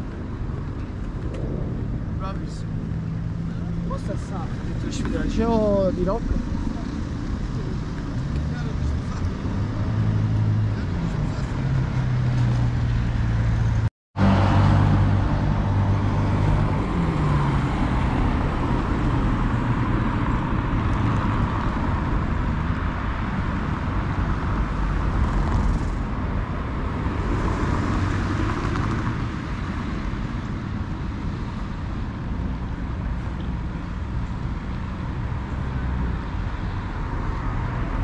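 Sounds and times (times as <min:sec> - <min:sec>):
low engine hum: 0:00.0 - 0:05.3
cars driving past: 0:00.0 - 0:38.0.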